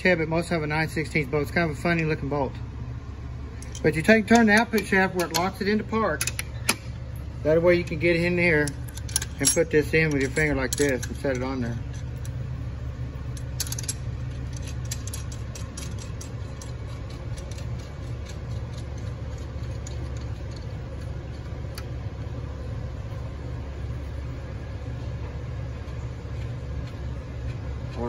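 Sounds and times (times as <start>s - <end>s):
low mechanical hum: 0.0s - 28.0s
metallic clicks and clinks: 8.6s - 12.4s, 13.3s - 20.7s.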